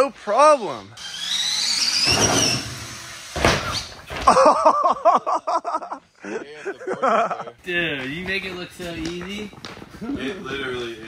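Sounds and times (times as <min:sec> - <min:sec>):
electric motor whining: 0:01.0 - 0:03.9.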